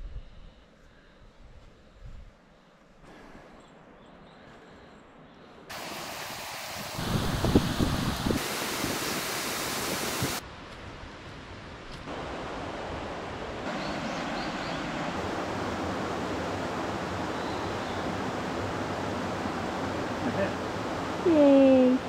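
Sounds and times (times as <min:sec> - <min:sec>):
stream water rushing: 0:05.7 - 0:10.4, 0:12.1 - 0:22.0.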